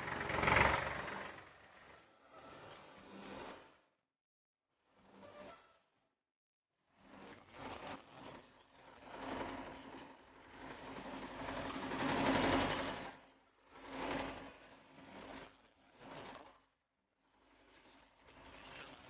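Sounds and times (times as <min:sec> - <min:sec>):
tractor engine chugging: 0:00.0 - 0:02.0.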